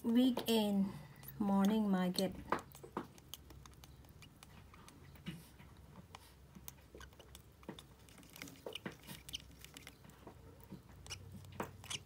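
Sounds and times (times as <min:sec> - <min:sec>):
bird beak clicking on syringe: 0:02.6 - 0:05.2, 0:06.1 - 0:12.0.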